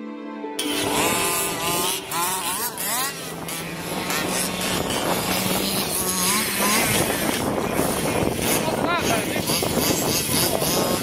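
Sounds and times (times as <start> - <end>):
small two-stroke engine revving: 0.6 - 11.0.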